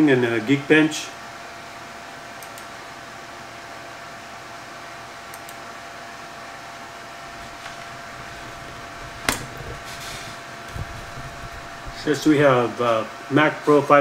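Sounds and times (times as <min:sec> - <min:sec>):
computer fan whirring: 0:00.0 - 0:14.0
sharp click: 0:02.4 - 0:02.7.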